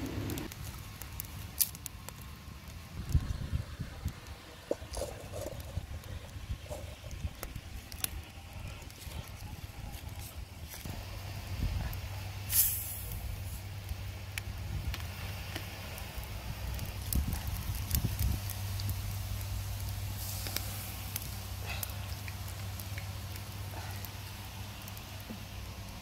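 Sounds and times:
low rumble: 0:00.0 - 0:00.5
bottle hissing open: 0:12.5 - 0:13.1.

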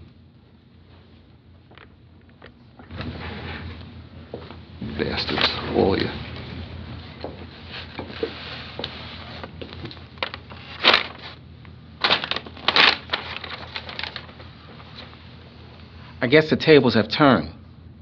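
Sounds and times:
low room hum: 0:00.0 - 0:18.0
paper rustling: 0:07.7 - 0:11.4, 0:12.0 - 0:15.2.

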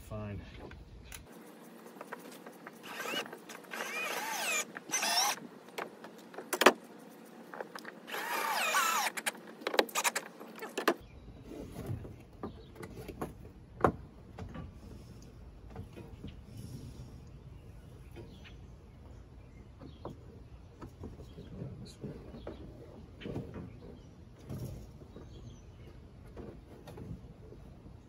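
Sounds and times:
cordless drill motor whine: 0:02.8 - 0:05.4, 0:08.1 - 0:09.3.

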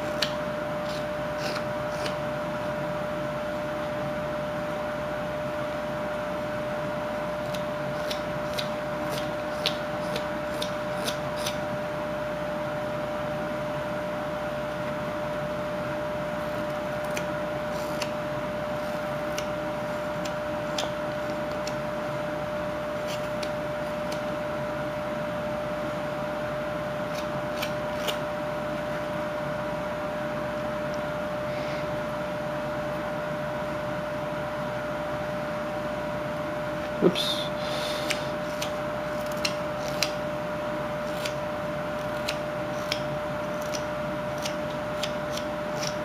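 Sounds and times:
steady hum with whine: 0:00.0 - 0:46.0
knife cutting wood chips: 0:00.1 - 0:02.2, 0:37.4 - 0:40.2, 0:40.8 - 0:46.0.

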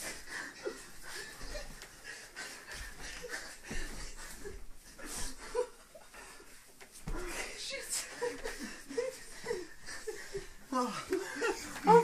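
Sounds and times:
people breathing: 0:00.0 - 0:12.0
rustling bedding and clothes: 0:00.0 - 0:12.0
people laughing: 0:07.9 - 0:12.0.

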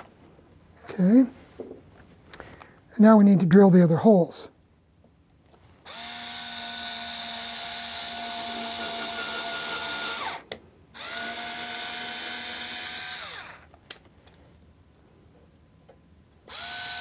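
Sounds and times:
cordless drill whining: 0:05.8 - 0:13.7, 0:16.5 - 0:17.0.

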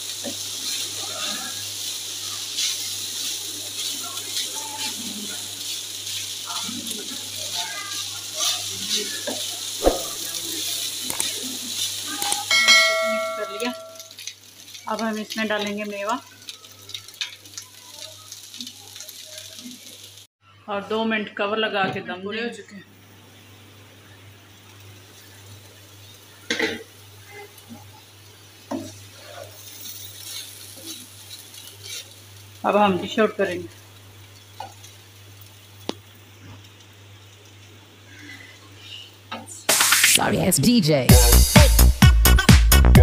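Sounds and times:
spatula stirring rice in wok: 0:00.0 - 0:13.6, 0:28.6 - 0:32.4
light sizzle: 0:00.0 - 0:42.9
spatula scraping pan: 0:00.2 - 0:07.6
bell-like chime: 0:12.5 - 0:14.1.

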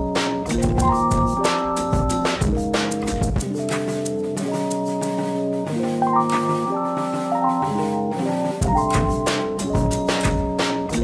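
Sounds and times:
drum beat and bass: 0:00.0 - 0:11.0
held chords: 0:00.0 - 0:11.0.

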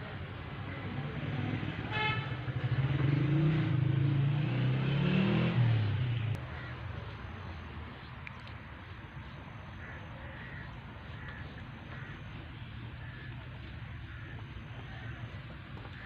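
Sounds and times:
vehicle engine passing by: 0:00.6 - 0:07.2.

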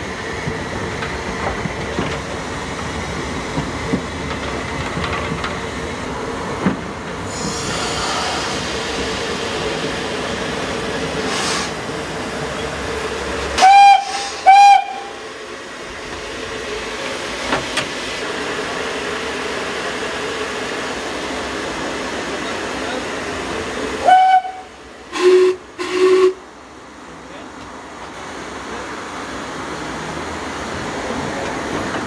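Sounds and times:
steam locomotive whistle blasts: 0:13.6 - 0:15.2, 0:24.0 - 0:26.4.

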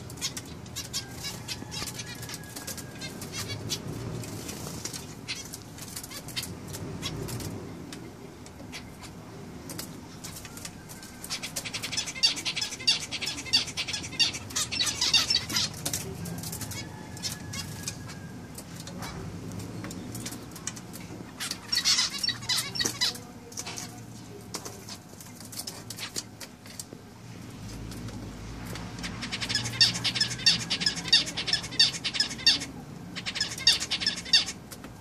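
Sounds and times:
finches calling: 0:29.0 - 0:34.6.

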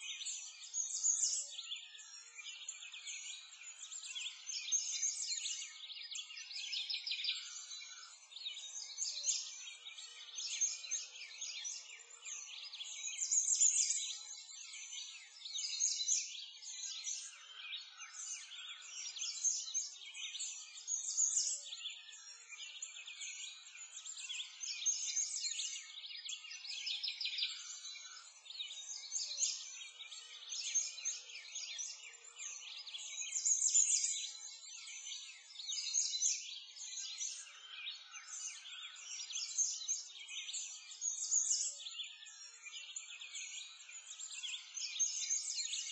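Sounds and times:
birds chirping and singing: 0:00.0 - 0:45.9.

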